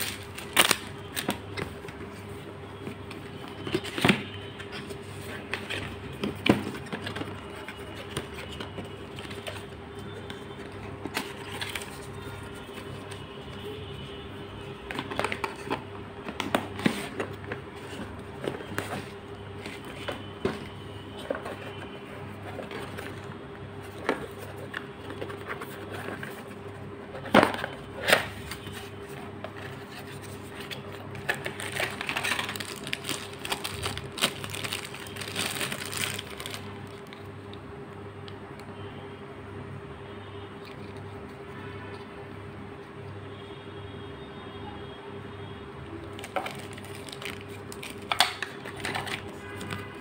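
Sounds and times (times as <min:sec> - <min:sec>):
packaging rustling and crinkling: 0:00.0 - 0:13.2, 0:16.4 - 0:37.3, 0:46.1 - 0:50.0.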